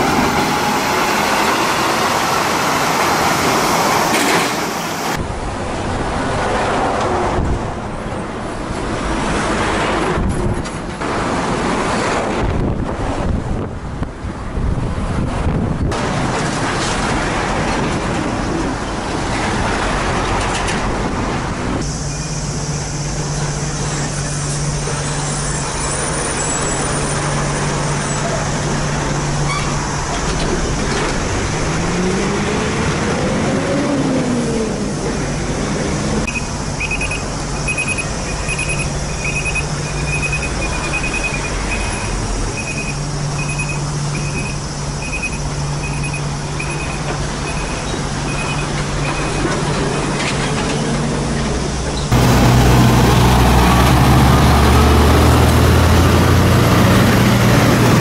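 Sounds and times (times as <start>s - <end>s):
truck engine drone: 0.0s - 6.4s, 16.0s - 58.0s
truck accelerating: 0.0s - 12.8s, 15.1s - 58.0s
electronic warning beep: 36.3s - 49.4s.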